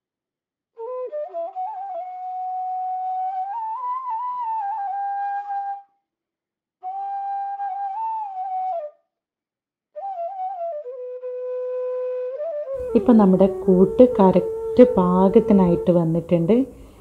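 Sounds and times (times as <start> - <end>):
slow instrumental melody: 12.8 - 17.0.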